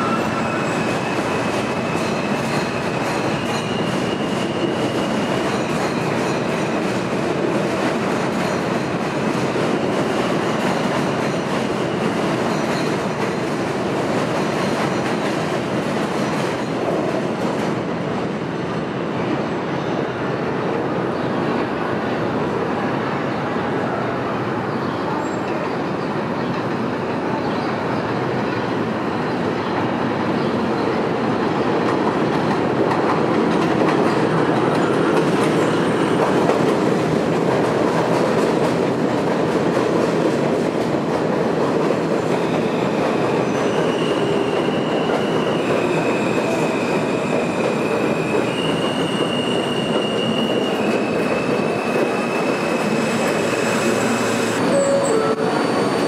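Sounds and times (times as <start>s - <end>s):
high wheel squeal: 0.0s - 6.5s, 42.4s - 56.0s
train wheels clattering on rail: 0.2s - 18.3s, 29.7s - 56.0s.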